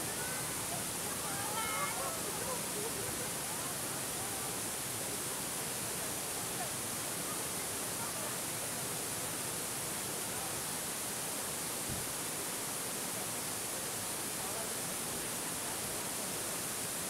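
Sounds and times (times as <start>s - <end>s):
faint voices: 0.0s - 9.4s
waterfall rushing: 0.0s - 17.0s.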